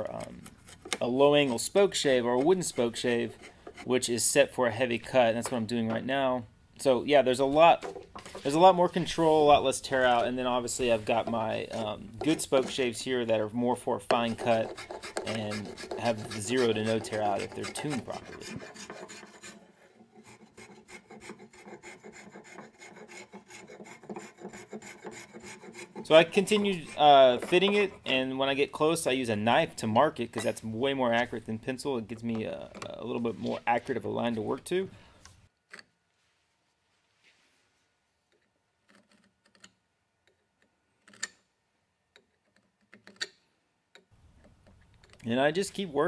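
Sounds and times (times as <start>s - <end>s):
spokeshave scraping wood: 0.0s - 4.2s, 7.4s - 28.4s.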